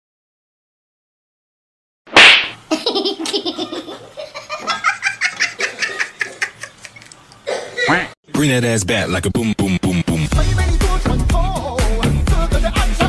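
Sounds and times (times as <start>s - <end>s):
hearty laughter: 2.7s - 7.9s.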